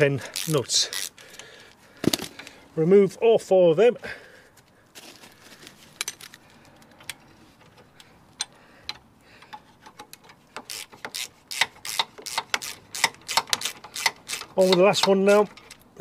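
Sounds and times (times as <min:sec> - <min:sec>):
ratchet spanner clicking: 0:08.4 - 0:15.8.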